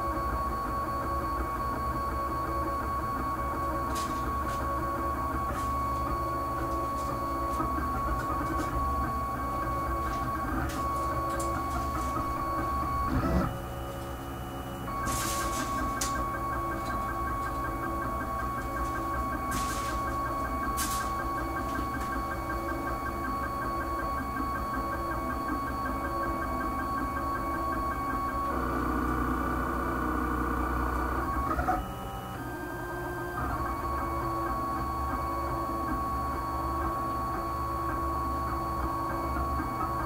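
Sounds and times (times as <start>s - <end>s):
constant low hum: 0.0s - 26.5s
stepper motors whining: 0.6s - 32.6s.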